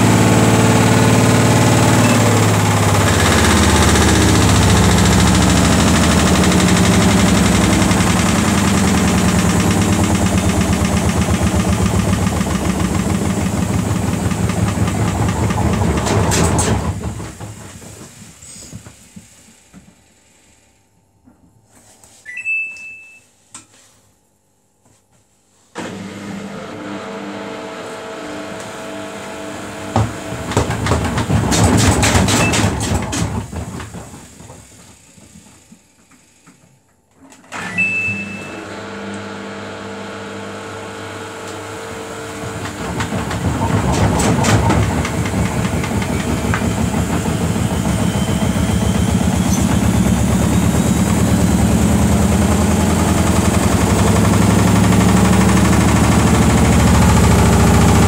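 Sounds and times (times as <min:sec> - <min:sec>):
drum motor whine: 0:00.0 - 0:18.8, 0:39.8 - 0:58.0
washing machine knocking spin: 0:00.0 - 0:20.0, 0:28.4 - 0:36.9, 0:40.2 - 0:58.0
washing machine beep: 0:02.0 - 0:02.6, 0:22.2 - 0:23.4, 0:32.2 - 0:32.8, 0:37.5 - 0:38.7, 0:45.7 - 0:51.5.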